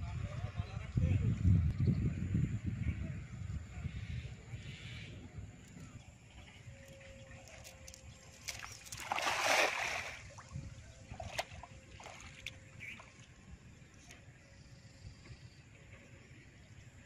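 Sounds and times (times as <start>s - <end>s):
small sharp splashes: 8.4s - 13.3s
cast net splashing into water: 8.5s - 12.5s.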